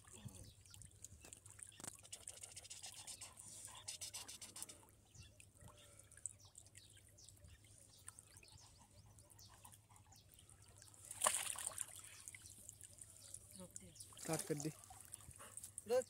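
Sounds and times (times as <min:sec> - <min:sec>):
water dripping off a dog: 0:09.7 - 0:16.0
loud splash: 0:11.1 - 0:11.9.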